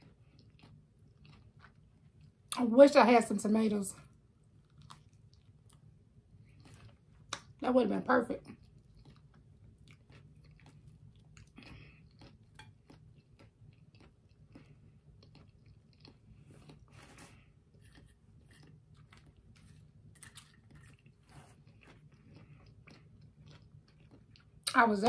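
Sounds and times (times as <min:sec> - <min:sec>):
faint chewing of a sandwich: 0:00.0 - 0:02.6, 0:04.0 - 0:07.6, 0:08.4 - 0:24.8.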